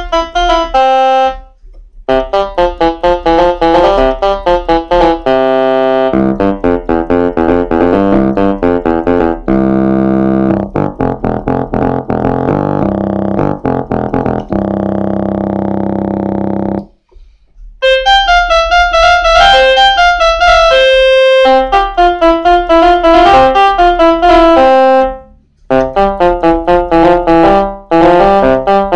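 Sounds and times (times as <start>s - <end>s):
bright high keyboard melody: 0.0s - 17.0s, 17.8s - 28.9s
electronic keyboard notes and chords: 0.0s - 17.0s, 17.8s - 28.9s.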